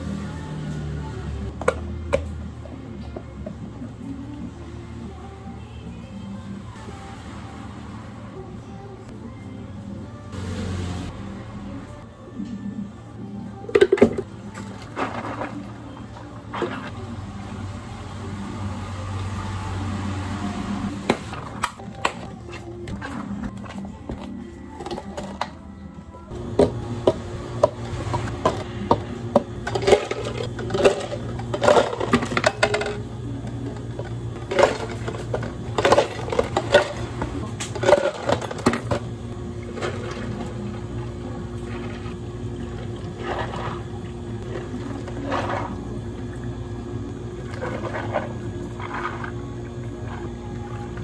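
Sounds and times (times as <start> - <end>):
cafe equipment hum: 0.0 - 51.0
ice cubes clattering: 14.6 - 15.8, 29.6 - 33.0, 34.4 - 39.0, 47.5 - 50.3.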